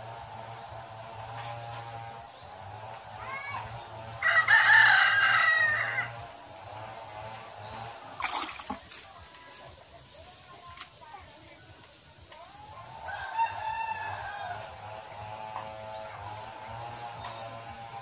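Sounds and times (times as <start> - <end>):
rooster crowing: 4.2 - 6.2, 13.0 - 14.8
hands splashing in bucket of water: 8.1 - 9.2.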